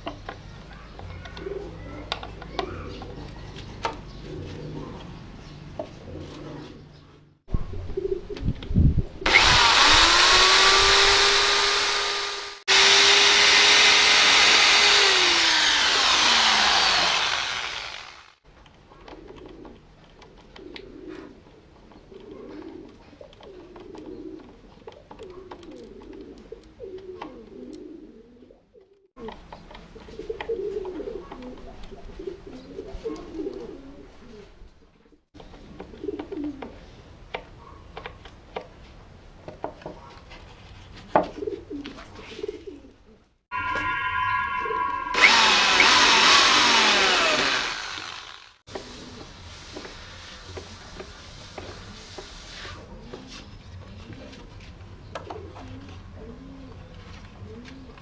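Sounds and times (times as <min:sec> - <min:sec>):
pigeons cooing: 0:00.8 - 0:09.2, 0:18.9 - 0:37.0, 0:41.2 - 0:43.3, 0:52.8 - 0:58.0
electric drill running: 0:09.2 - 0:18.4, 0:45.1 - 0:48.6
screws driven into wood: 0:09.3 - 0:18.4, 0:45.2 - 0:48.6.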